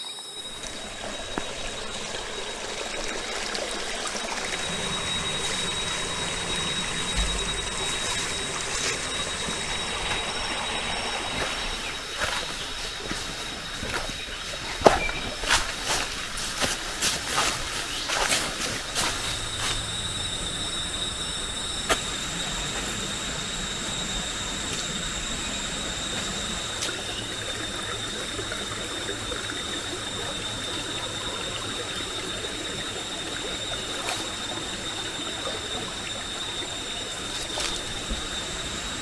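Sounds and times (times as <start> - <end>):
rainforest hiss: 0.0 - 39.0
high steady tone: 0.1 - 27.9.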